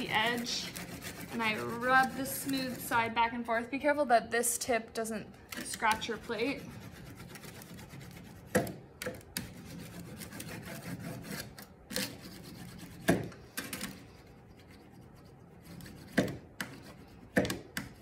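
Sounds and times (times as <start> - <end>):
burnisher rubbing on metal plate: 0.0 - 3.1.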